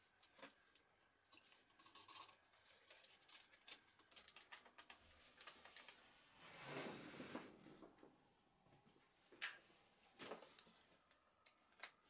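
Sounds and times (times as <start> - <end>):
faint clicks and light scrapes: 0.1 - 6.1.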